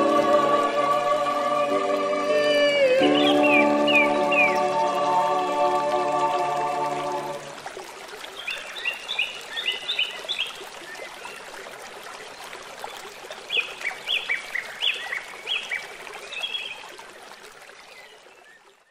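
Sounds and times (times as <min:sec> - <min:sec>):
held music chord: 0:00.0 - 0:07.5
stream rushing: 0:00.0 - 0:17.8
birds chirping: 0:02.9 - 0:04.9.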